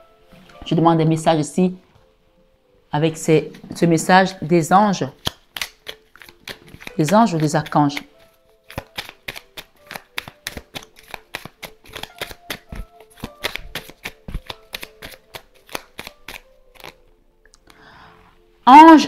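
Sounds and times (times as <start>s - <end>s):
cards being shuffled: 5.1s - 17.0s.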